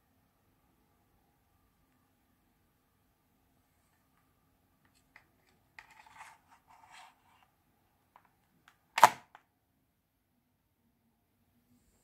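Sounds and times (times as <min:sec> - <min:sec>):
faint rubbing and scratching: 0:04.9 - 0:07.6.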